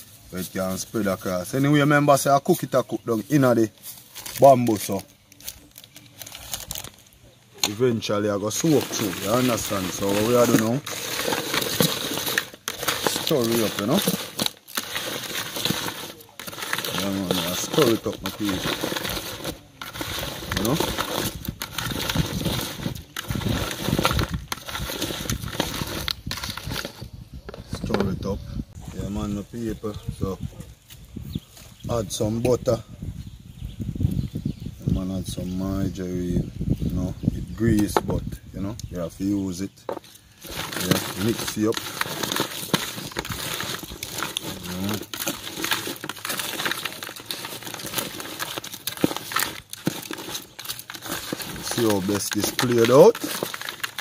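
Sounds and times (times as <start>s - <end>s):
shrimp being stirred with spices: 0.0s - 28.1s, 39.2s - 54.0s
crayfish shells clicking and rustling: 3.7s - 28.0s, 39.8s - 54.0s.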